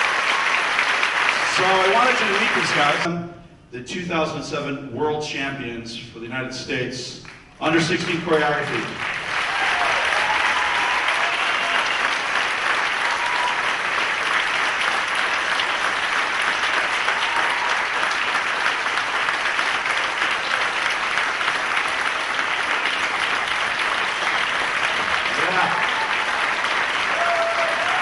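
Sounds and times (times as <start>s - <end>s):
audience applauding: 0.0s - 3.1s, 7.6s - 28.0s
faint whoops: 9.4s - 12.1s, 13.0s - 13.8s, 17.1s - 18.0s, 25.4s - 28.0s.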